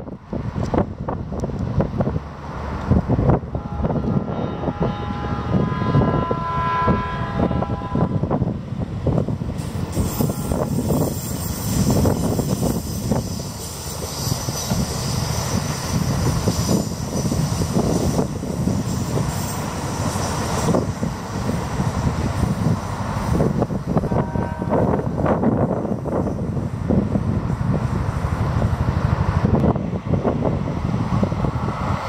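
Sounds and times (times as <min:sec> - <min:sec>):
hiss of wheels on rail: 0:00.0 - 0:32.0
train wheels rumbling on rails: 0:00.0 - 0:32.0
rail joint clacks: 0:07.6 - 0:32.0.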